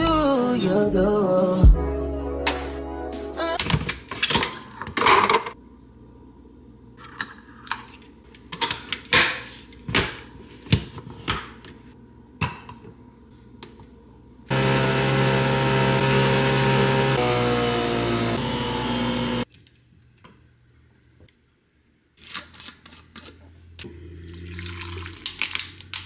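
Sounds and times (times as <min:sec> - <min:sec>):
coffee machine motor hum: 0:14.5 - 0:19.4.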